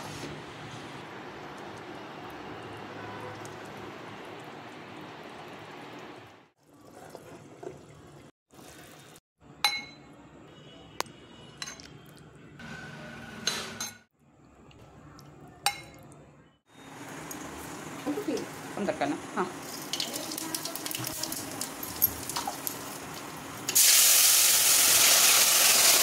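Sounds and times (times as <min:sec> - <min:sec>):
ladle clinking against glass bowl: 0:09.7 - 0:10.1.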